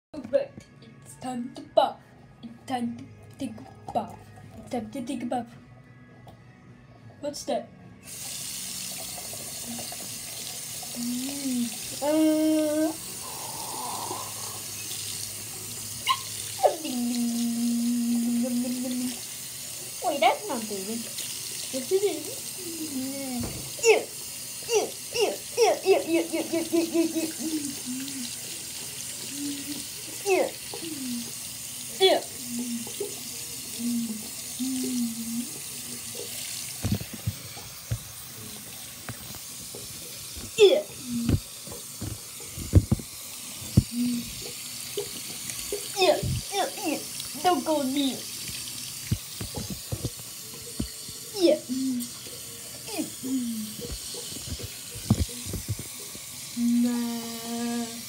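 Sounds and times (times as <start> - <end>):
faucet water splashing on rubber: 8.1 - 58.0.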